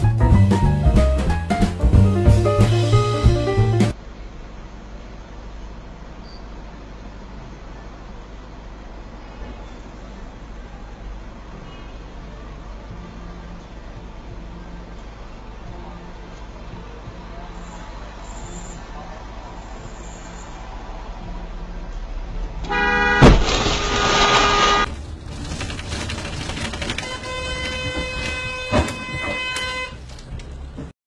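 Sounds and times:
car horn: 22.6s - 24.9s, 26.9s - 30.0s
car collision bang: 22.7s - 26.1s, 26.8s - 29.7s.

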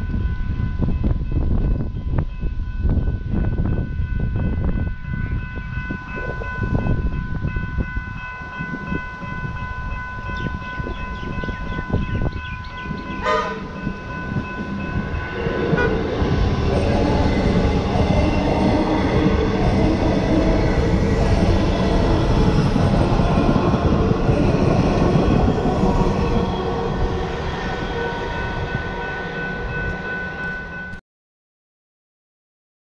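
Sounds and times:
steady high tone: 3.9s - 31.0s
train horn toot: 13.0s - 17.6s, 24.4s - 30.5s.

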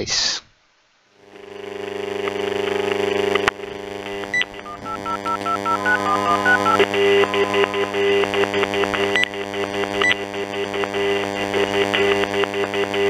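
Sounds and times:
buzzing electronic interference: 1.2s - 13.0s
telephone dial tone: 4.3s - 9.4s
keypad touch-tones: 4.4s - 9.4s, 10.0s - 10.3s
rapid pulsing tone: 4.5s - 10.0s.

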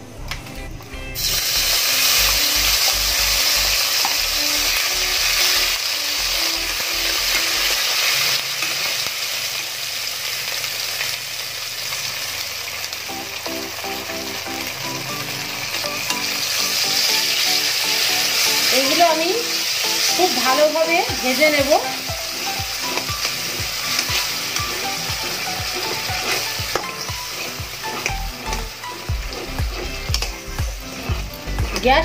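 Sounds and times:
spice paste sizzling in hot oil: 1.2s - 32.0s
spatula stirring: 20.0s - 32.0s.

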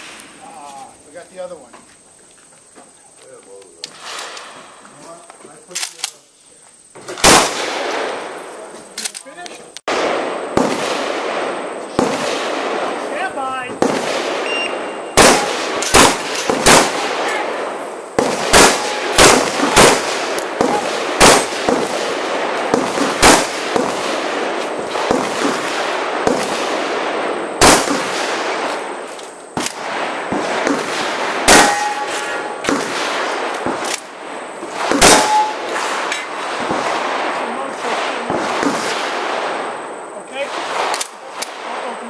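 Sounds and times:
shotgun shots: 7.1s - 8.5s, 9.9s - 42.0s
steel plate clang: 31.5s - 32.5s, 35.1s - 36.3s.

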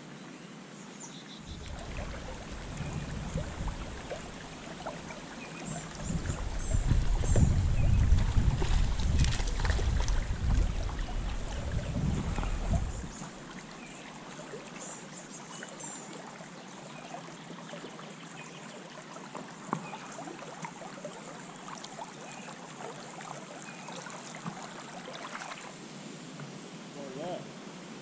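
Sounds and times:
river water flowing: 0.0s - 28.0s
microphone rumble: 1.6s - 5.1s, 5.7s - 13.4s.

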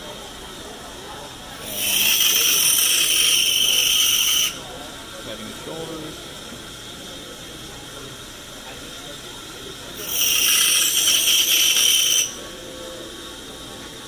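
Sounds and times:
band saw cutting wood: 1.6s - 4.6s, 10.0s - 12.4s.

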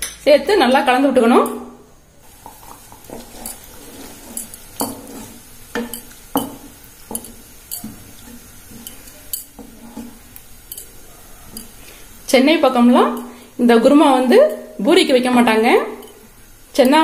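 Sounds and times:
wooden spatula scraping a pan: 2.3s - 12.2s.

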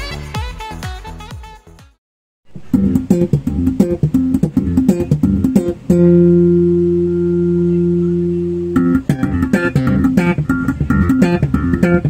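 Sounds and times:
electric bass guitar plucked: 2.5s - 12.0s.

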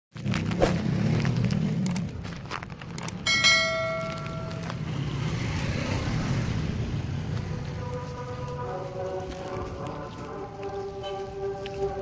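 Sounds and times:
bell-like chime: 3.3s - 5.0s.

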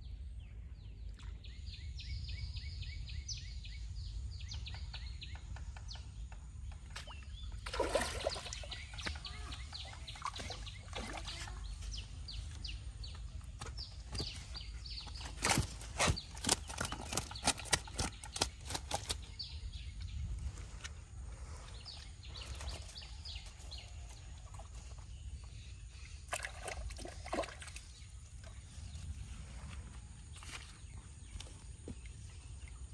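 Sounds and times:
small birds chirping: 0.0s - 32.9s
fish flapping and slapping: 13.6s - 19.3s.

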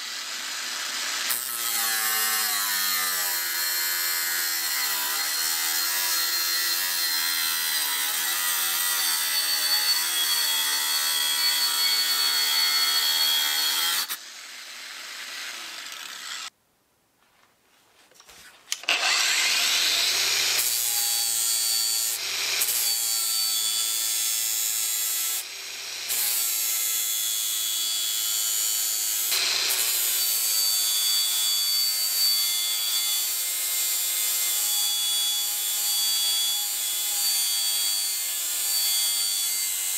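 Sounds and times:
angle grinder cutting steel: 0.0s - 16.5s, 18.8s - 39.9s
grinder grinding steel: 0.0s - 16.5s, 18.8s - 39.9s
grinder motor whining: 8.7s - 16.5s, 18.8s - 21.4s.

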